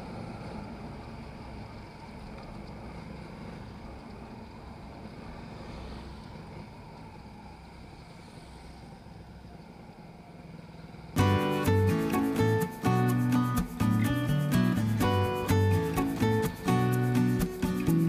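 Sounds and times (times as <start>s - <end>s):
wind and road noise: 0.0s - 11.2s.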